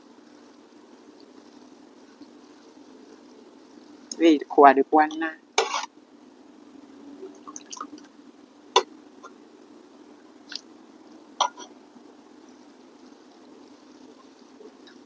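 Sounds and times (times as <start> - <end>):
faint low hum: 0.0 - 15.0
soft wet splashes: 7.2 - 8.1.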